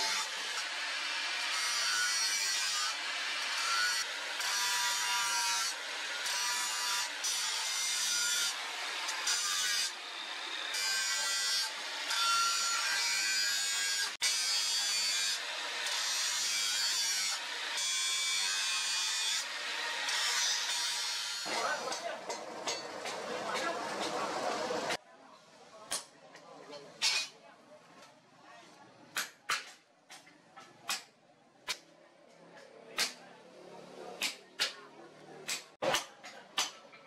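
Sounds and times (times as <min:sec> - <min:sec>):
angle grinder cutting steel: 0:00.0 - 0:25.0.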